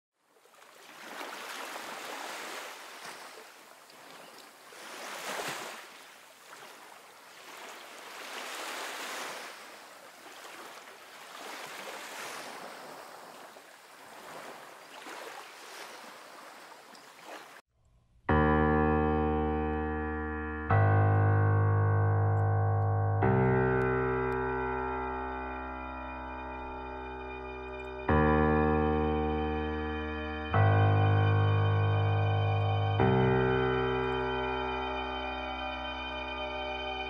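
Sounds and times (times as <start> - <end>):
sea waves washing: 0.3 - 17.6
piano music: 18.2 - 37.0.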